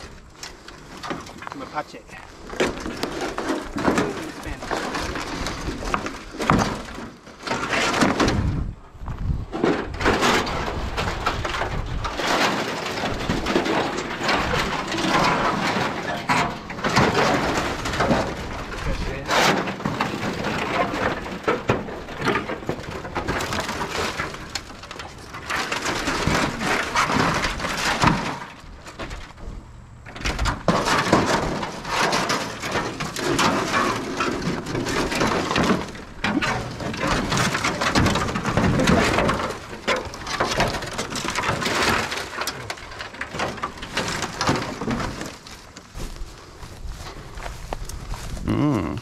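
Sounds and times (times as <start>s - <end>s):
dry brush rustling and crunching: 0.0s - 29.4s, 30.7s - 49.0s.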